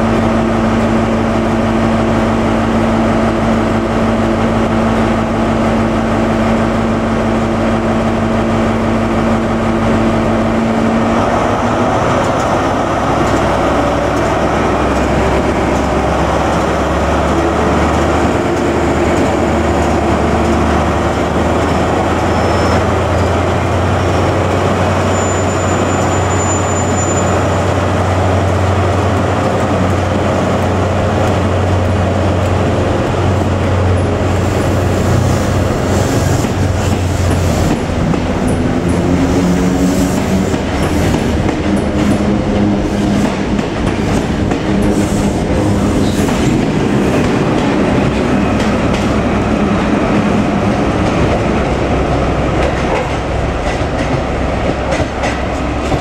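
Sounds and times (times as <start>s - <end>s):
diesel train engines running: 0.0s - 56.0s.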